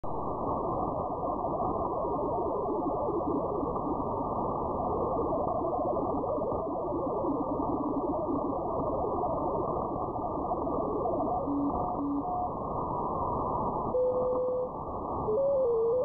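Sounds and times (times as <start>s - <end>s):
warbling digital signal tones: 10.3s - 12.6s, 13.9s - 16.0s.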